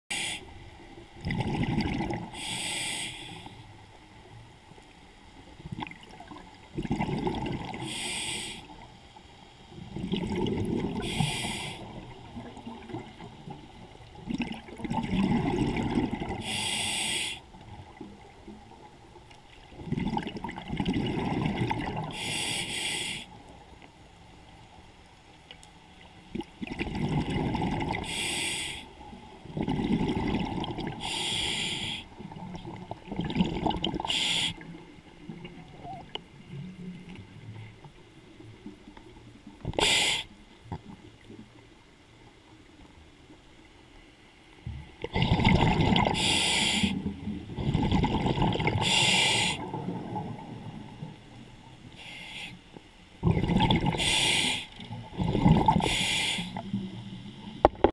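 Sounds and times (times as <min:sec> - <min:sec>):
regulator inhalation hiss: 0:00.1 - 0:00.5, 0:02.4 - 0:03.6, 0:07.8 - 0:08.7, 0:11.0 - 0:11.9, 0:16.4 - 0:17.5, 0:22.2 - 0:23.4, 0:28.0 - 0:29.0, 0:31.0 - 0:32.2, 0:34.1 - 0:34.6, 0:39.8 - 0:40.3, 0:46.2 - 0:47.0, 0:48.8 - 0:49.6, 0:52.0 - 0:52.6, 0:54.0 - 0:54.8, 0:55.8 - 0:56.7
exhaled bubbles rumbling: 0:00.9 - 0:02.5, 0:05.4 - 0:08.0, 0:09.7 - 0:16.5, 0:17.6 - 0:22.2, 0:26.2 - 0:28.2, 0:29.1 - 0:31.2, 0:32.1 - 0:39.8, 0:44.7 - 0:51.9, 0:53.2 - 0:54.2, 0:54.8 - 0:56.0.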